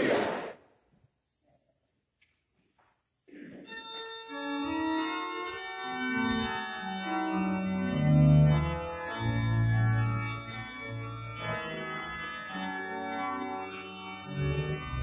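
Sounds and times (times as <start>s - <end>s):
church organ chords: 3.6s - 15.0s.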